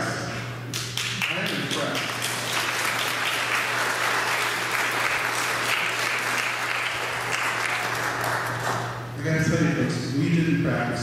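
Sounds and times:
crowd applauding: 0:00.8 - 0:09.0.

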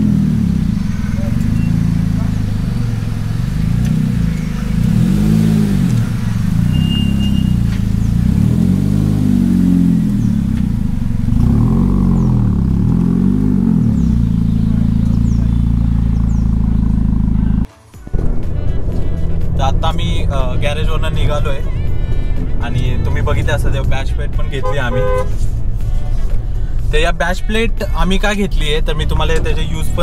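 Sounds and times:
vehicle engine revving: 0:00.0 - 0:30.0.

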